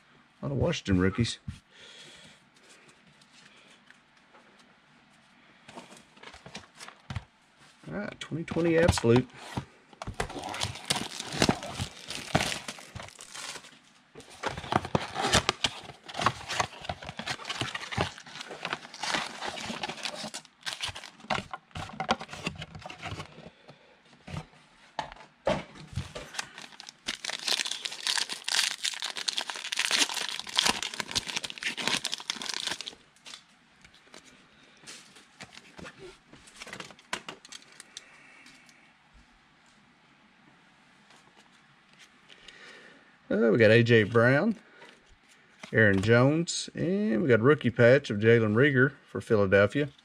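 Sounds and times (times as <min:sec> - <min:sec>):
cards handled with clicks and rustles: 0:08.4 - 0:23.5, 0:25.8 - 0:38.7
plastic wrapping torn and crinkled: 0:10.1 - 0:21.9, 0:26.0 - 0:33.4.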